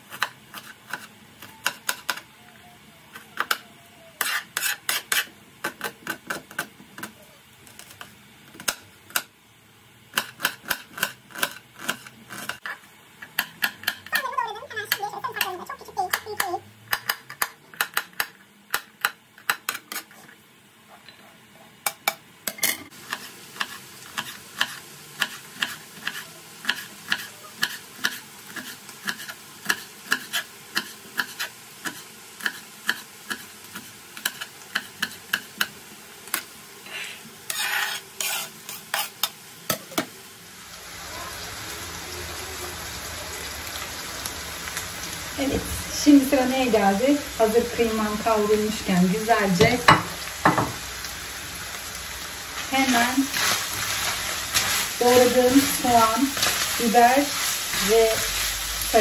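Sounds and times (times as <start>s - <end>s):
meat sizzling in a pan: 22.9s - 59.0s
utensil knocking against pan: 49.7s - 50.8s.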